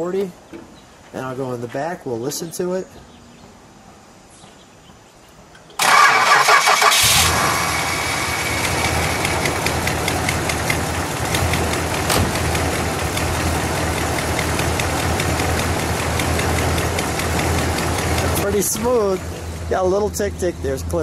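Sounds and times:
engine starter cranking: 5.8 - 10.8
car engine idling with ticking: 7.0 - 21.0.

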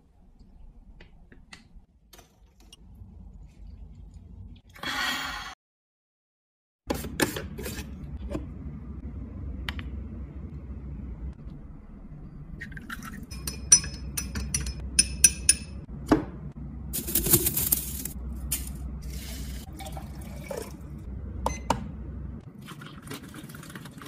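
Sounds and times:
glassware clinking: 13.3 - 15.8.

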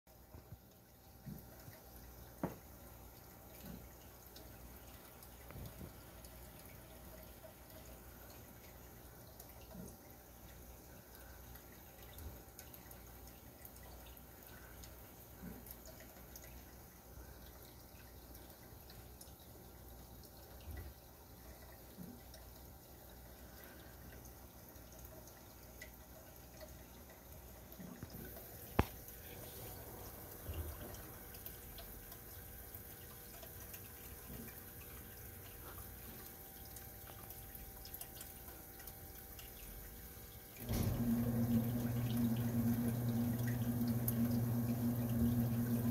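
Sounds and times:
water trickling and dripping: 0.1 - 45.9
steady hum: 40.5 - 45.9.

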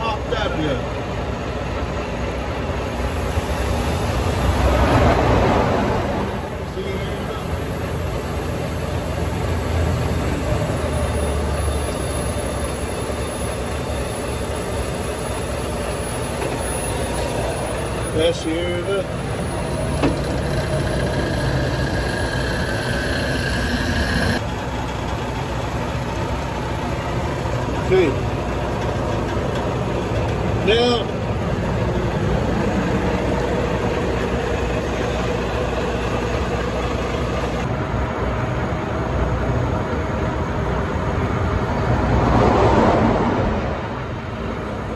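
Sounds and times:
diesel truck engine idling: 0.0 - 41.7
heavy traffic roar: 0.0 - 44.9
big vehicle rumbling past: 0.8 - 44.9.

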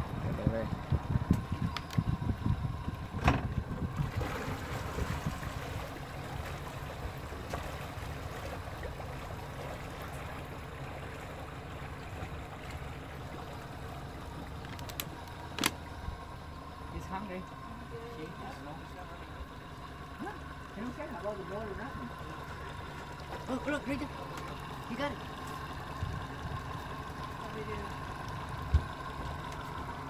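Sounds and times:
wind buffeting microphone: 0.0 - 5.9
small boat rumbling: 0.0 - 30.0.

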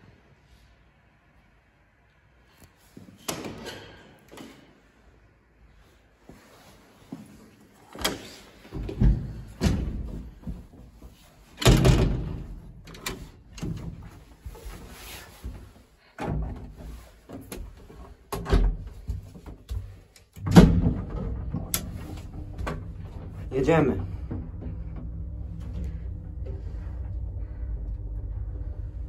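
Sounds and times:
lift doors clunking and banging: 7.9 - 14.5, 16.1 - 29.0.

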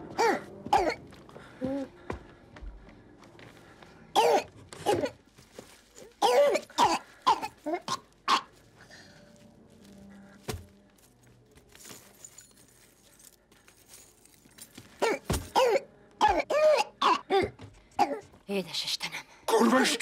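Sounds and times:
person coughing and gasping: 0.1 - 1.0, 4.2 - 5.2, 6.1 - 8.5, 15.0 - 18.2.

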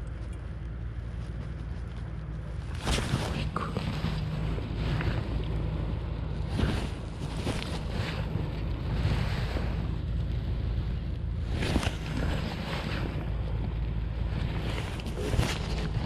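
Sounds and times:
wind rumbling on microphone: 0.0 - 16.0
water sloshing against raft: 11.4 - 13.6.

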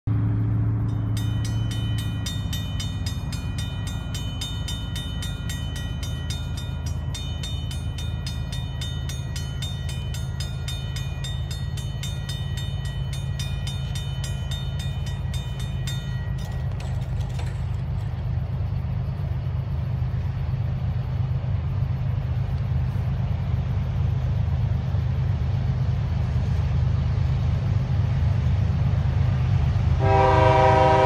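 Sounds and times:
train rumble: 0.0 - 31.0
railroad crossing bell ringing: 0.2 - 20.1, 30.0 - 31.0.

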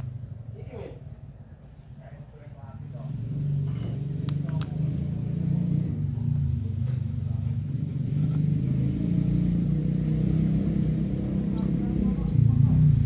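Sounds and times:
engine running: 2.8 - 13.0.

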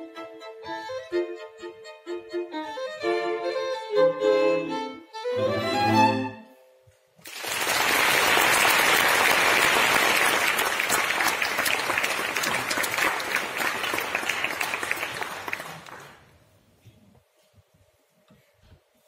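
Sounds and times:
audience applause: 7.2 - 16.4.

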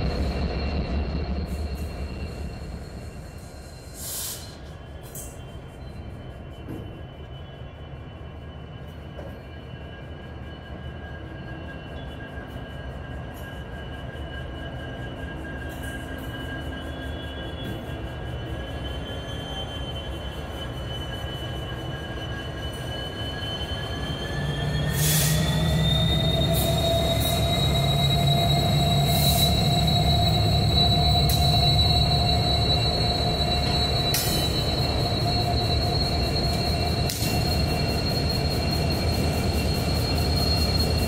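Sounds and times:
high-pitched squealing: 18.4 - 41.0.

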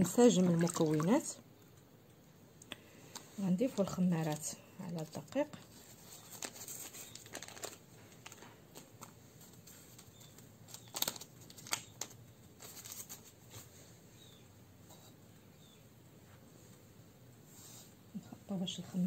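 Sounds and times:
rustling plastic glove: 4.2 - 13.9.

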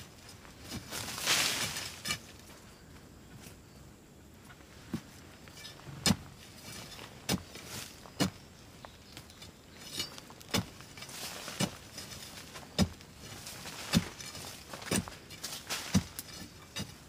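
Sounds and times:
soil and dry leaves rustling: 0.0 - 17.0
hand tool knocking into earth: 4.9 - 8.5, 9.2 - 17.0.

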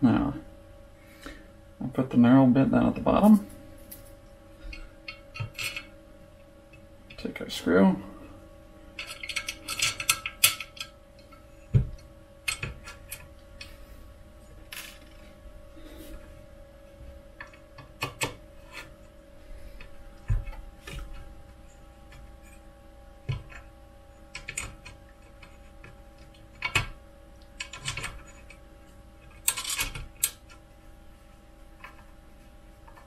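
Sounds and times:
faint steady hum: 0.0 - 33.0
screwdriver and screw clicking on metal: 4.7 - 5.9, 9.0 - 11.3, 24.3 - 27.0, 27.6 - 28.6, 29.2 - 30.6.

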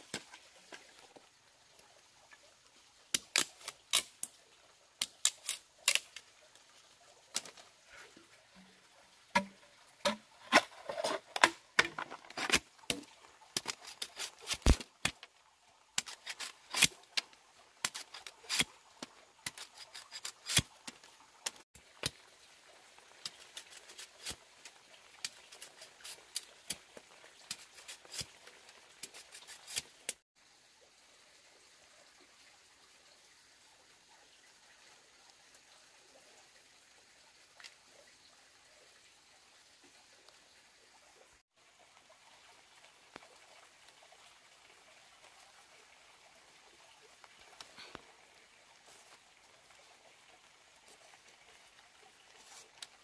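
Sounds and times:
machete chopping bamboo: 9.4 - 10.8.

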